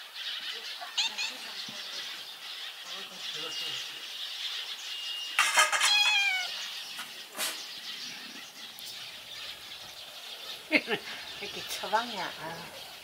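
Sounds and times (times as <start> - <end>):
cat meowing: 1.0 - 1.5, 5.7 - 6.6.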